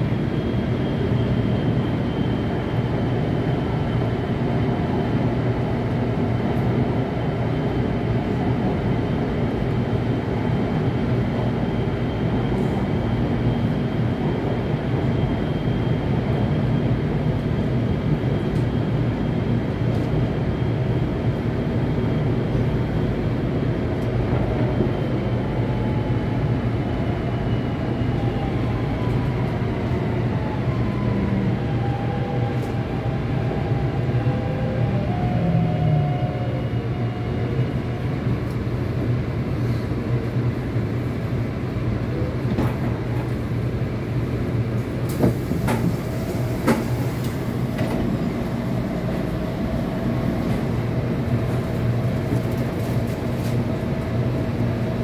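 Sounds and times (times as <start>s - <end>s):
train wheels rumbling: 42.1s - 55.0s.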